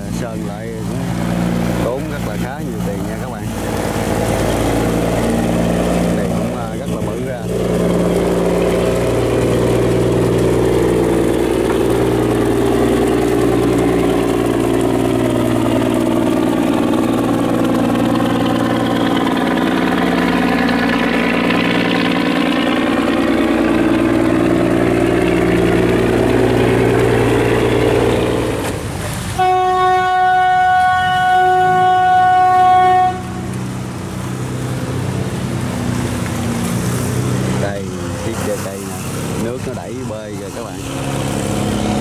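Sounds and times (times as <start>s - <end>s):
barge engine running: 0.0s - 42.0s
boat horn blast: 3.2s - 28.7s, 29.3s - 35.6s, 40.8s - 42.0s.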